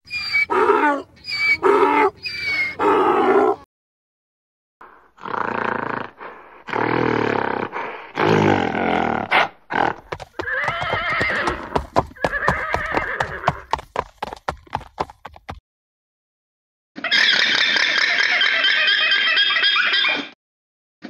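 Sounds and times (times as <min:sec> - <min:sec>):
horse whinnying: 0:00.1 - 0:03.6, 0:09.2 - 0:13.8, 0:17.0 - 0:20.4
galloping hoofbeats: 0:09.9 - 0:15.6.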